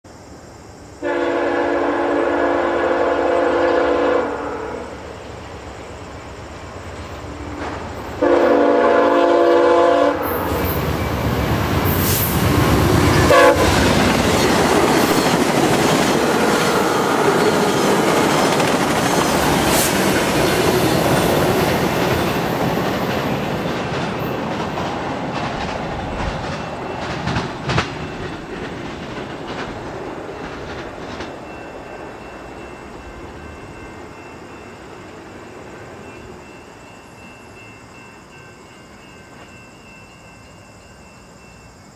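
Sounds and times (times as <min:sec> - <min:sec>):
train wheels rushing on rails: 0:00.2 - 0:41.8
train air horn: 0:01.0 - 0:05.1, 0:08.2 - 0:10.8, 0:13.0 - 0:14.0
wheels clacking over rail joints: 0:10.4 - 0:33.1.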